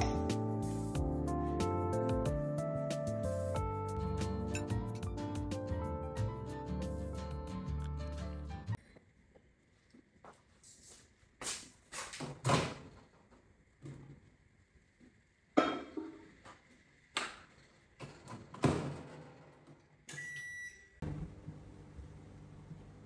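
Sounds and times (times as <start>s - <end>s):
low appliance hum: 12.2s - 23.0s.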